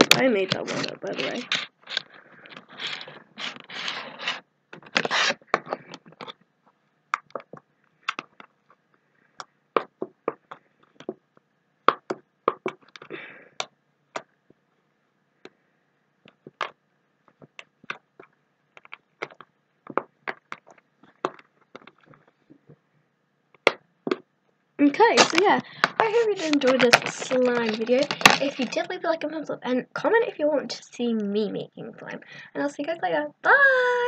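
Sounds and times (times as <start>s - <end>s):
sharp clicks and pops: 4.7s - 14.6s, 16.2s - 22.8s, 23.5s - 28.9s.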